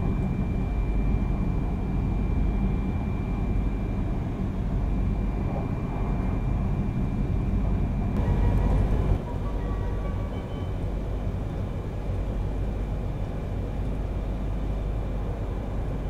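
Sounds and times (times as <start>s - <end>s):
faint high tone: 8.2s - 11.0s.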